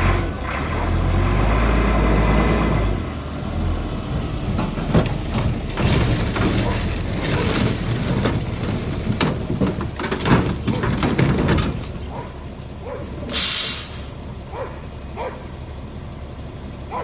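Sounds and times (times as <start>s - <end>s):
engine running under load: 0.0s - 17.0s
metal scraping and clanking: 4.1s - 13.8s
air hiss: 13.3s - 14.2s.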